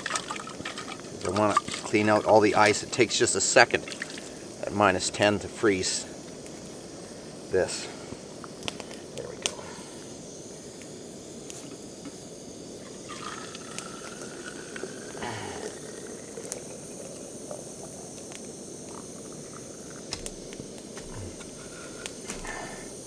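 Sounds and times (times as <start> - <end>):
water pouring into plastic bottle: 0.0 - 2.6, 13.1 - 18.0
steady hiss: 0.0 - 23.0.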